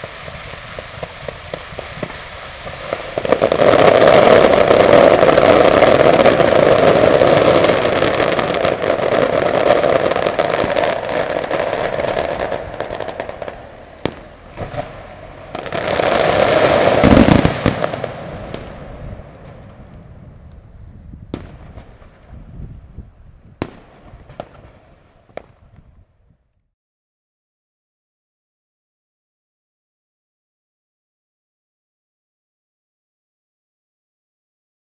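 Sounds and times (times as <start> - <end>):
fireworks crackling and banging: 0.0 - 26.1
deep firework boom: 0.0 - 26.2.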